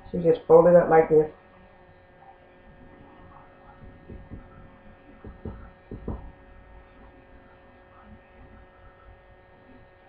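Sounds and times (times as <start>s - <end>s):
steady electrical hum: 0.0s - 10.0s
soft thumps of dough on board: 3.8s - 6.4s.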